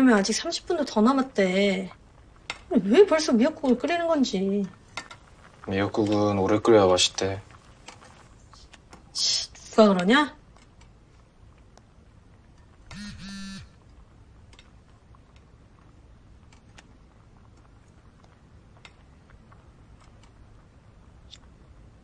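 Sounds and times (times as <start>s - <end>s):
smartphone vibrating buzzes: 12.9s - 13.8s.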